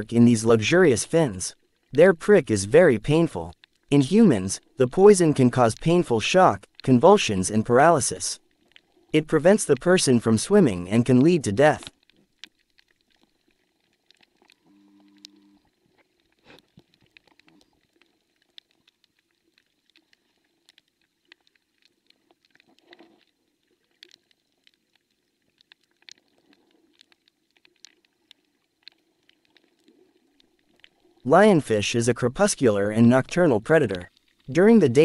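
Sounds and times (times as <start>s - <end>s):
faint short clicks and crackles: 11.9s - 31.2s
faint low hum: 14.6s - 15.7s.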